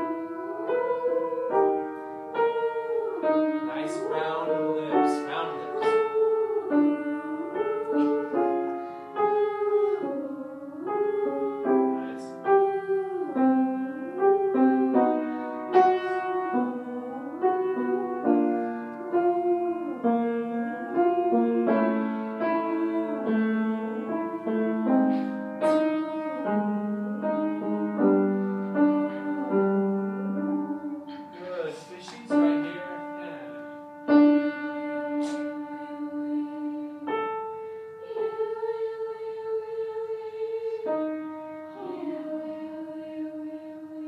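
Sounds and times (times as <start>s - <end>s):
grand piano playing: 0.0s - 44.0s.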